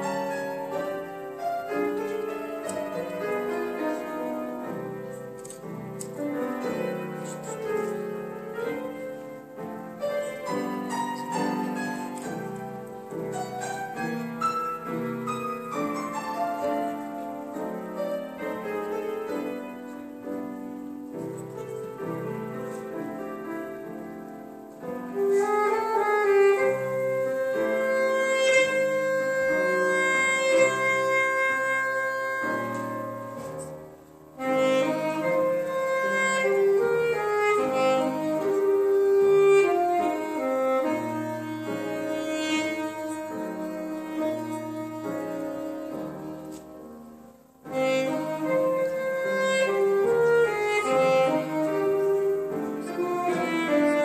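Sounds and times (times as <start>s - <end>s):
piano playing: 0.0s - 54.0s
woodwind long held notes: 25.1s - 33.8s, 34.4s - 46.9s, 47.6s - 54.0s.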